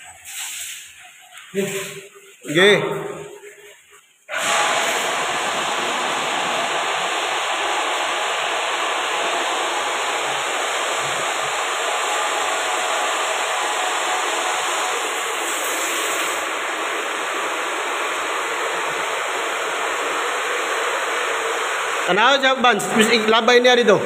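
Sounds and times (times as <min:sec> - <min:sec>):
water pump running: 0:00.0 - 0:24.0
water rushing through pipes: 0:00.0 - 0:24.0.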